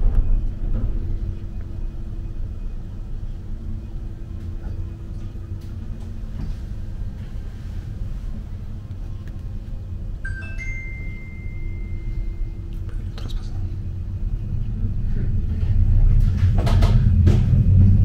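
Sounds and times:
cable car rumble and hum: 0.0 - 18.0
high steady ringing tone: 10.2 - 12.7.

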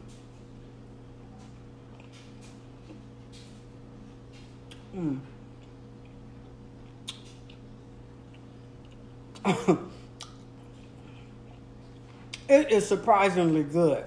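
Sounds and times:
steady low hum: 0.0 - 14.0
woman humming mmm: 4.8 - 5.4.

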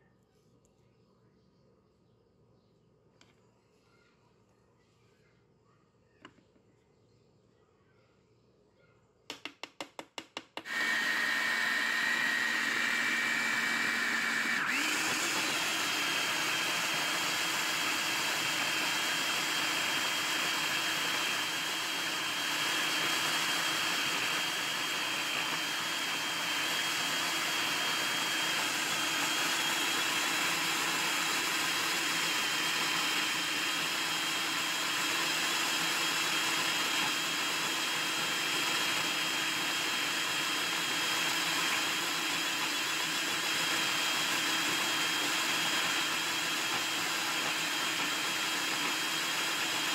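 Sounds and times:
food processor grinding: 10.6 - 49.9.

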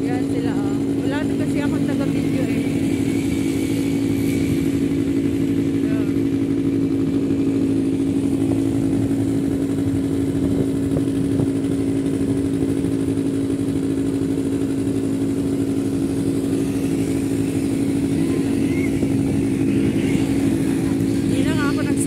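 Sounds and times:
quad bike engine idling: 0.0 - 22.0.

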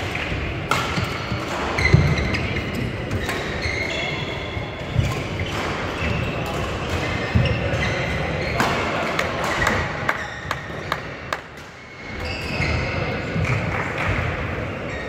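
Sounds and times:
rackets hitting shuttlecock: 0.0 - 3.6
shoes squeaking on floor: 1.0 - 8.9, 9.5 - 11.0, 11.8 - 13.5.

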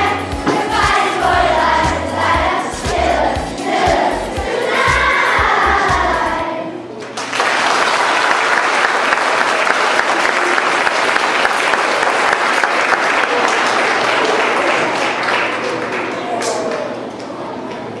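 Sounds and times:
audience applauding: 7.0 - 16.9.

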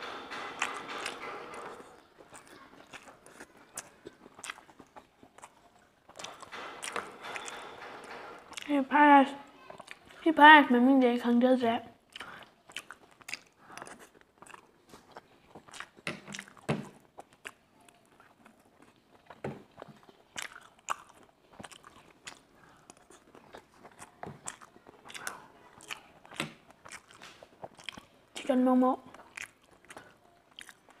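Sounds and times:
person chewing fried food: 0.6 - 7.6, 8.4 - 8.7, 9.7 - 10.2, 12.0 - 28.4, 29.0 - 31.0.

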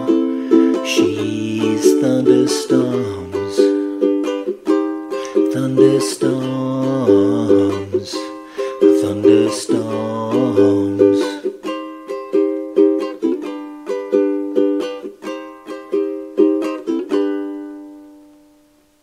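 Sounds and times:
ukulele strumming: 0.0 - 19.0.

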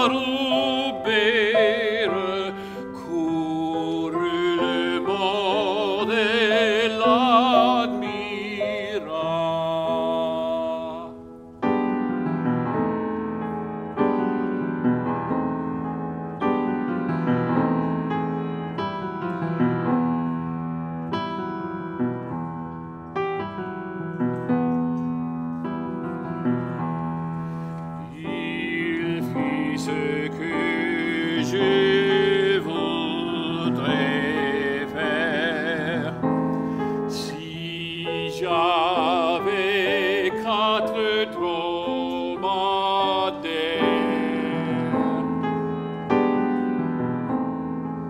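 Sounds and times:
man singing with vibrato: 0.0 - 11.3, 28.0 - 45.9
piano chords: 0.0 - 48.0.

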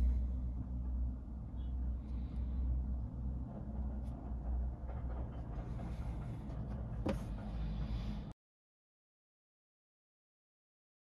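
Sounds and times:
low background rumble: 0.0 - 8.4.

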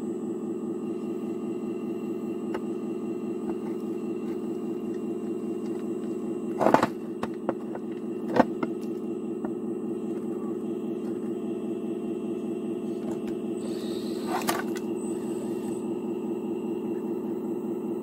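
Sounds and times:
hydraulic pump humming: 0.0 - 18.0
stones clattering: 6.6 - 8.9.

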